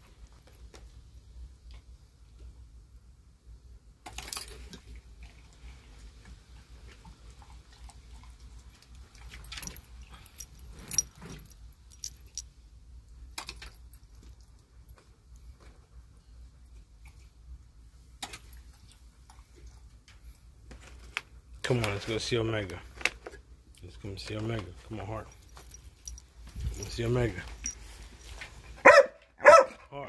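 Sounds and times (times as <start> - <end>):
faint low hum: 0.0 - 30.0
metallic jingling and clinking: 9.1 - 12.5, 24.8 - 28.4.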